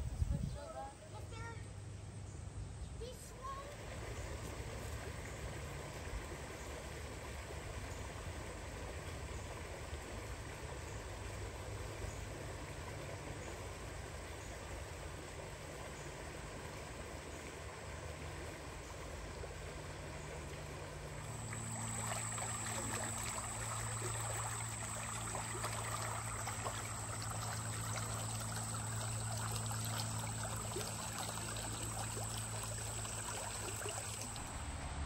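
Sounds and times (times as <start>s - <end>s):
stream water running: 3.0s - 35.0s
steady low hum: 3.6s - 35.0s
thin high whine: 21.2s - 35.0s.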